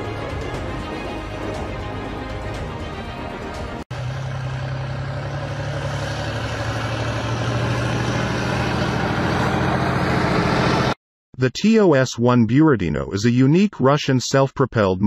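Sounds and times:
heavy vehicle engine running: 0.0 - 11.0.

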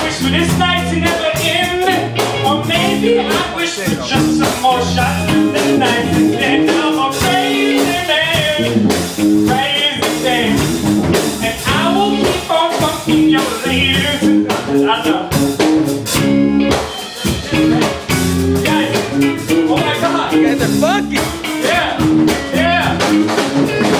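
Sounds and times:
blues-rock song: 0.0 - 23.9.

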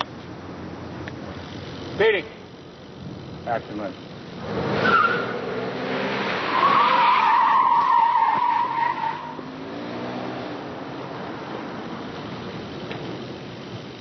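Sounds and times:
car engine running: 0.0 - 6.6, 9.2 - 14.0
tyres squealing: 4.8 - 5.4, 6.4 - 9.4.

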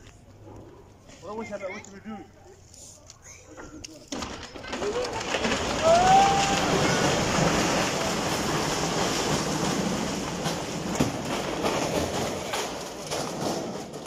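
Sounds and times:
building collapsing rumble: 4.4 - 14.0.

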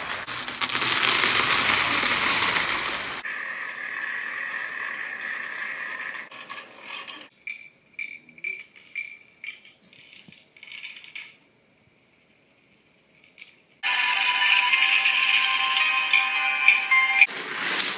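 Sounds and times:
dominoes toppling clatter: 0.0 - 3.2, 8.6 - 11.4, 17.3 - 17.9.

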